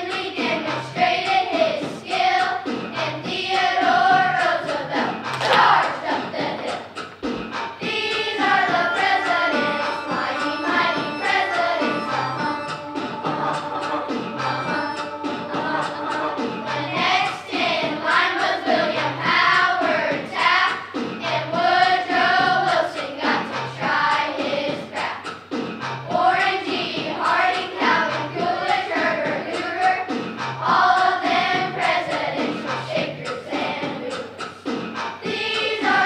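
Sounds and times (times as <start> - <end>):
backing track with steady beat: 0.0 - 36.0
children singing in unison: 0.0 - 36.0.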